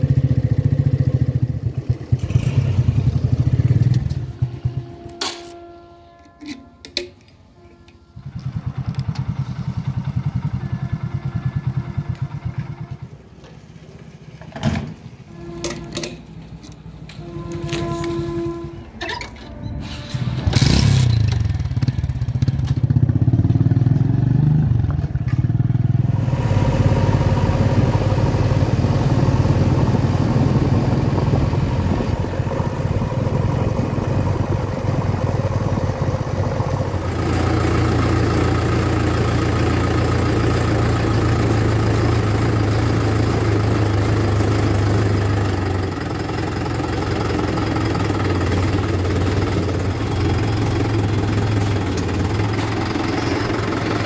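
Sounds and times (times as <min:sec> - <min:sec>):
motorcycle engine revving: 0:00.0 - 0:05.4, 0:08.2 - 0:13.2, 0:20.1 - 0:54.0
diesel engine running: 0:00.0 - 0:54.0.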